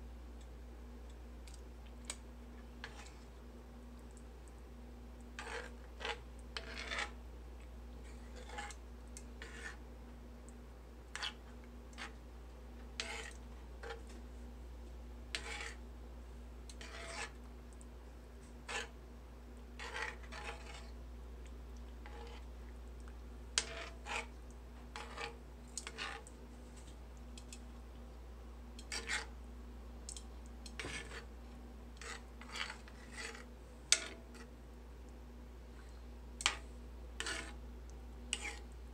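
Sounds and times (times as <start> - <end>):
steady low hum: 0.0 - 38.9
metal spoon scraping skillet: 2.8 - 3.3, 5.4 - 7.2, 8.0 - 9.8, 11.1 - 12.2, 12.8 - 14.2, 15.3 - 15.8, 16.7 - 17.4, 18.6 - 19.0, 19.8 - 21.0, 22.0 - 22.5, 23.6 - 27.6, 28.8 - 29.4, 30.1 - 31.4, 32.0 - 34.5, 36.4 - 37.6, 38.3 - 38.7.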